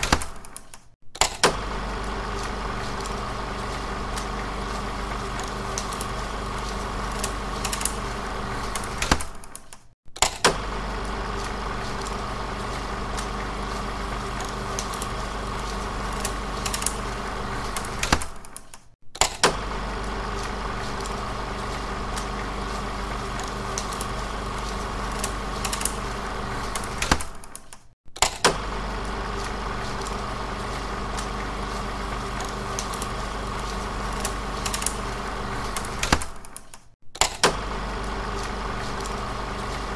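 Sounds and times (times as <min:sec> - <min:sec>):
click: 0:00.0 - 0:01.4, 0:08.8 - 0:10.5, 0:18.1 - 0:19.4, 0:27.1 - 0:28.5, 0:36.1 - 0:37.5
film projector motor hum: 0:01.2 - 0:09.6, 0:10.2 - 0:18.5, 0:19.2 - 0:27.6, 0:28.2 - 0:36.6, 0:37.2 - 0:39.9.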